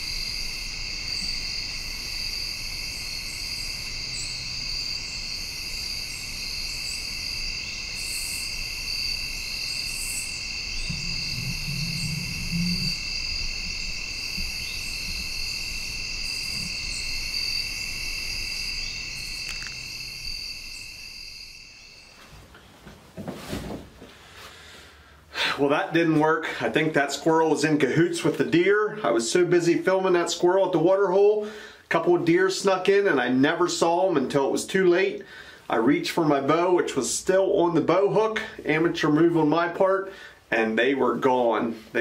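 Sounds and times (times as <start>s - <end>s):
crickets and insects trilling: 0.0s - 22.3s, 24.9s - 42.0s
short low sound: 10.8s - 13.1s.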